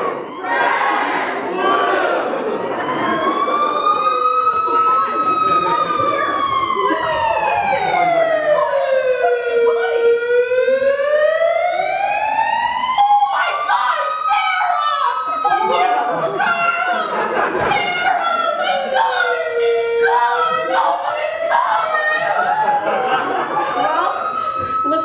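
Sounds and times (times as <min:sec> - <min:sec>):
crowd murmur: 0:00.0 - 0:25.0
siren wailing: 0:00.0 - 0:25.0.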